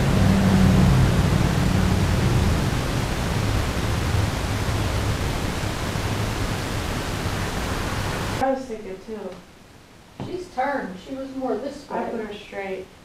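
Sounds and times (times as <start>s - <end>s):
low hum: 0.0s - 8.4s
steady hiss: 0.0s - 13.0s.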